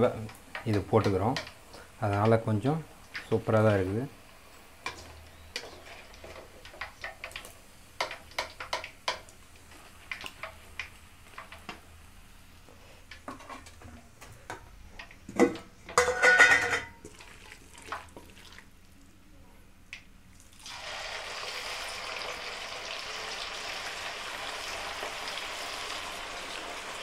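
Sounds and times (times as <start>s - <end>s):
metal spoon scraping a pan: 4.8s - 7.4s
steel plate clattering: 16.0s - 17.0s.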